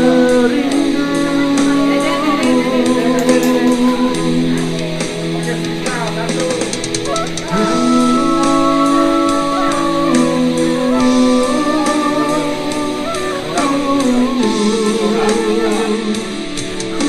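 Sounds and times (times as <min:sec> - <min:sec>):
guitar-led song with steady beat: 0:00.0 - 0:17.0.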